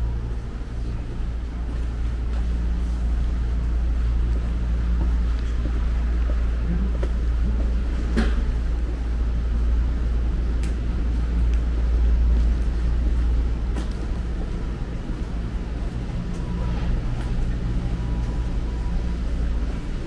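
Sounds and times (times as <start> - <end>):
faint voices: 0.0 - 9.0, 14.2 - 20.0
faint engine hum: 0.0 - 20.0
low rumble of traffic: 0.0 - 20.0.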